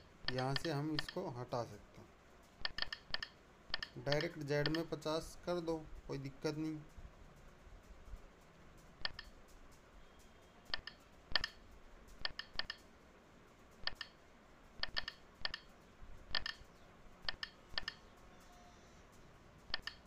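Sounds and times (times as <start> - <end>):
phone keypad clicks: 14.8 - 15.7, 16.3 - 16.6.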